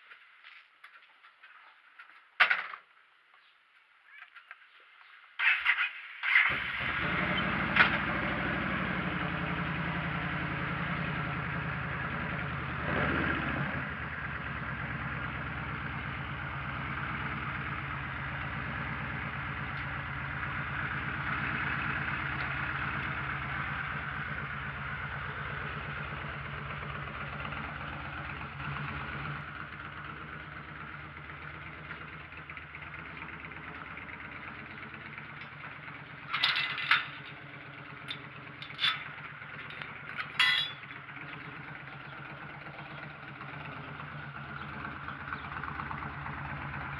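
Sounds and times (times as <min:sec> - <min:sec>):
motorcycle engine idling: 0:06.4 - 0:46.9
metal gate latch clanking: 0:36.2 - 0:41.0.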